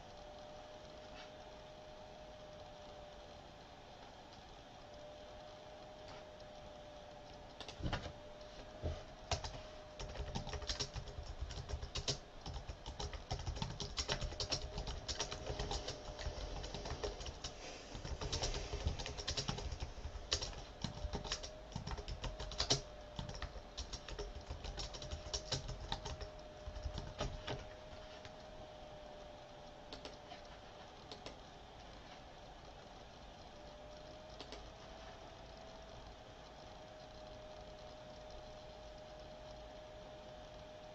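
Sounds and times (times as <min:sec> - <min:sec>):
faint steady hum: 0:00.0 - 0:40.9
keyboard key clicks: 0:29.9 - 0:30.2.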